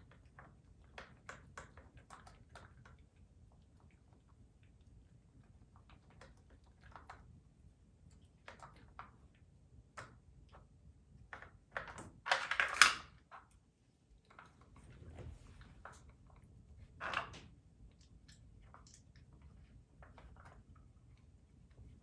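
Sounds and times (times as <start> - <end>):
plastic puzzle clicking and rattling: 11.4 - 13.5.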